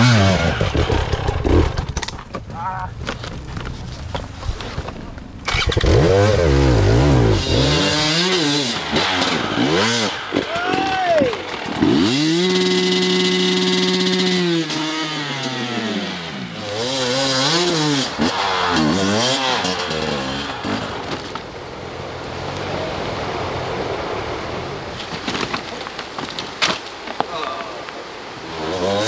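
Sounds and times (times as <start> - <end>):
dirt bike engine revving: 0.0 - 1.9, 5.5 - 10.8, 11.5 - 21.4, 28.4 - 29.0.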